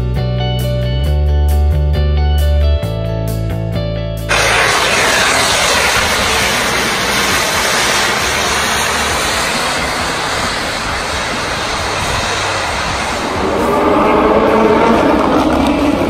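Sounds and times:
race cars roaring: 0:04.3 - 0:16.0.

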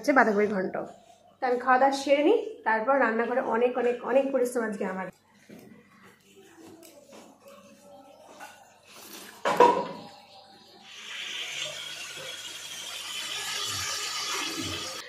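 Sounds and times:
chicken sizzling in oil: 0:10.8 - 0:15.0.

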